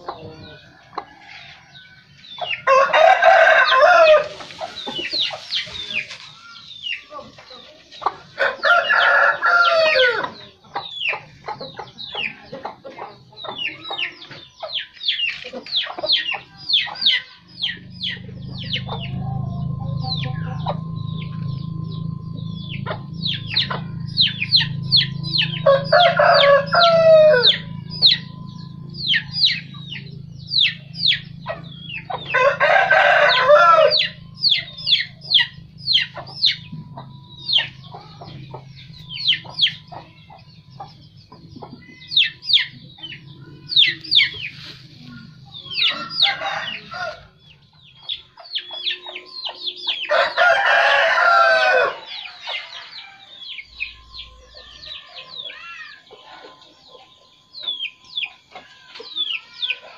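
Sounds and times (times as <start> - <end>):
rooster crowing: 0.0 - 6.7, 8.4 - 10.5, 16.7 - 40.0, 41.8 - 47.6, 49.9 - 57.2
chicks peeping: 0.0 - 59.9
low steady hum: 12.9 - 59.0.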